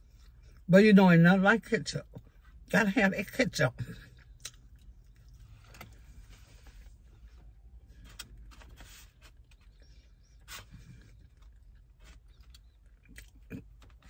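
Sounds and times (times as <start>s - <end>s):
low car cabin hum: 0.0s - 14.0s
faint chewing: 4.0s - 14.0s.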